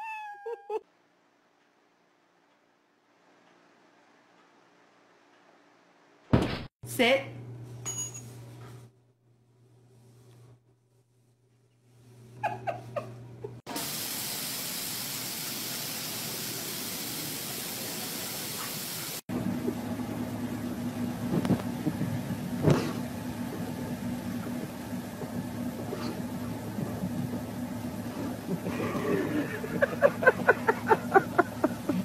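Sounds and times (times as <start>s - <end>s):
car idling: 19.4s - 32.0s.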